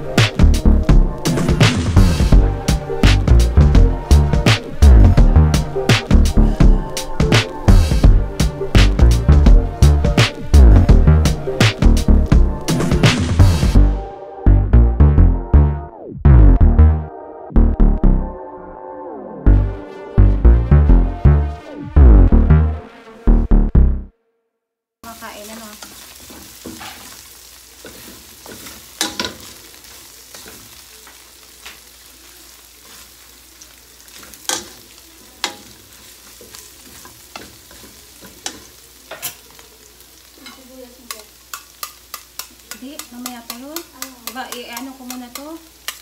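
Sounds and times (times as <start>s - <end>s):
garlic sizzling in hot oil: 0.0s - 13.8s, 25.0s - 46.0s
metal ladle scraping wok: 25.8s - 30.7s, 34.2s - 39.4s.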